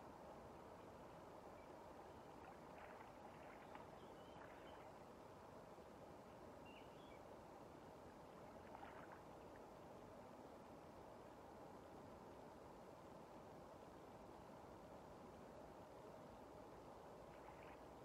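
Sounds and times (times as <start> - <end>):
faint river ambience: 0.0 - 18.0
faint high bird chirps: 1.5 - 5.0, 6.6 - 7.3.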